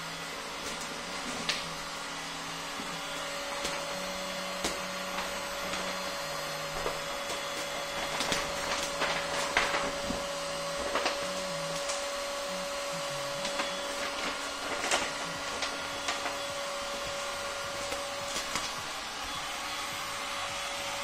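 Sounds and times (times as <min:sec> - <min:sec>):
plastic film crinkling: 0:03.1 - 0:12.8, 0:13.4 - 0:19.6.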